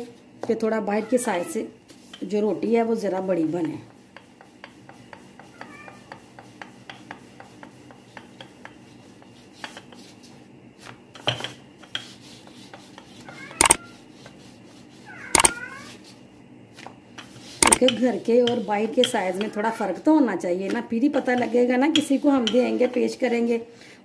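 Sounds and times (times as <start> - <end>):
rolling pin rolling dough: 3.1 - 10.4
rolling pin clicking: 13.6 - 13.8, 17.6 - 18.0.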